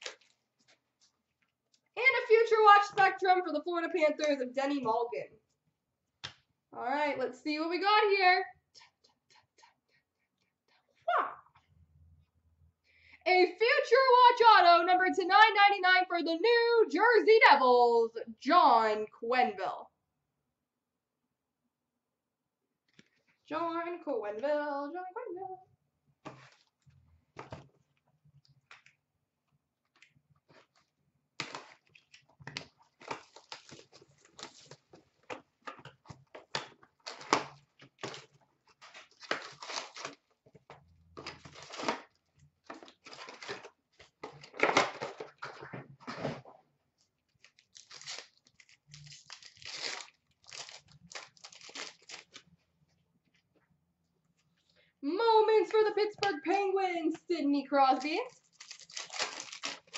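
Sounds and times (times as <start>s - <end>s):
cardboard and paper tearing: 37.0s - 40.3s, 47.5s - 52.4s, 58.4s - 59.9s.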